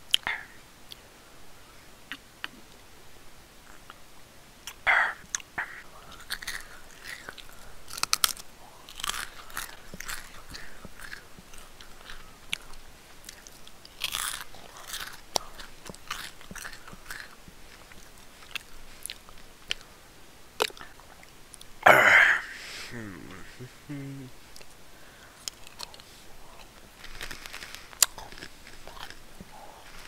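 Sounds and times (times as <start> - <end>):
person chewing food: 0.1 - 1.0, 4.6 - 19.9, 20.6 - 21.8, 24.5 - 30.0.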